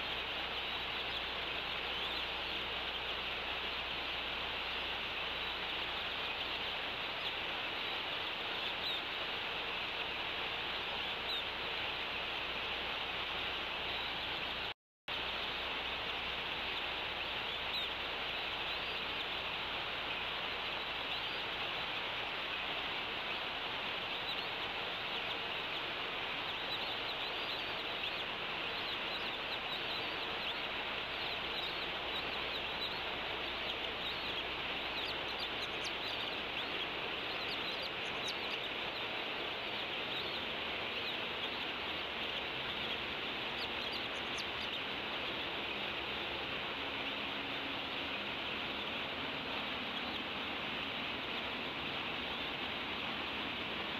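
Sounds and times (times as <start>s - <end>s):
steady outdoor hiss: 0.0s - 53.9s
faint high chirps: 23.2s - 45.9s.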